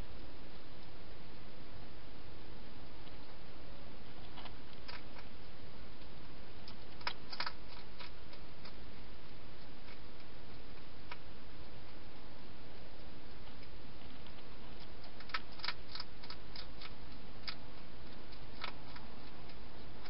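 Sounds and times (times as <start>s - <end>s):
steady background hiss: 0.0s - 20.0s
hedgehog chewing crunches: 4.0s - 20.0s.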